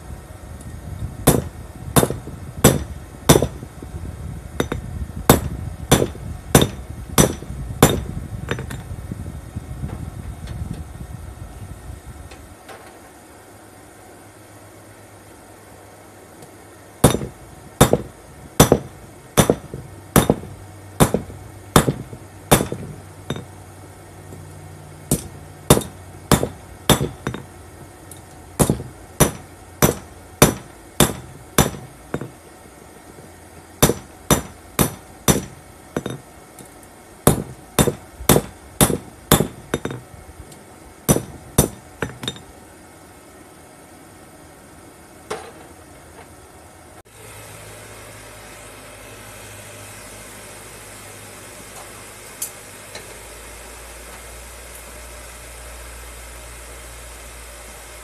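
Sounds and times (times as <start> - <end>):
hammer striking steel on anvil: 1.3 - 3.6, 4.6 - 8.8, 17.0 - 23.5, 25.1 - 27.5, 28.6 - 32.3, 33.8 - 36.2, 37.3 - 40.0, 41.1 - 42.5.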